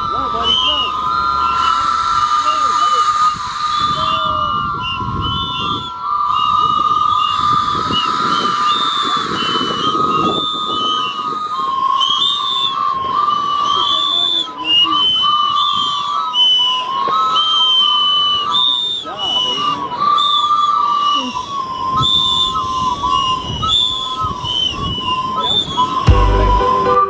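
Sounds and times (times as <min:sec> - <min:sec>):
train whistles tooting: 0:00.0 - 0:11.2, 0:23.4 - 0:27.0.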